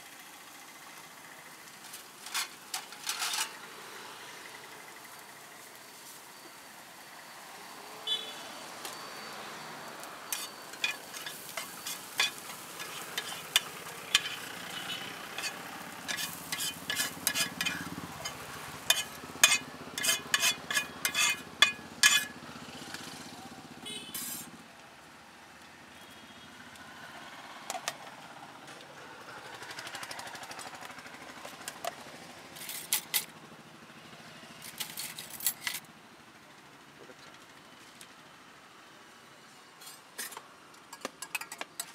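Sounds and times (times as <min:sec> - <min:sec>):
metal spatula scraping iron griddle: 0:02.2 - 0:03.6, 0:10.3 - 0:22.4, 0:24.1 - 0:24.5
low sizzle from hot pan: 0:09.9 - 0:22.4.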